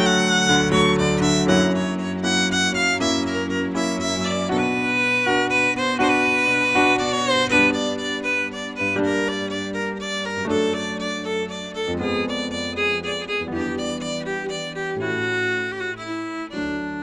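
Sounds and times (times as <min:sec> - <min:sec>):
bowed violin melody: 0:00.0 - 0:17.0
piano chords: 0:00.0 - 0:17.0.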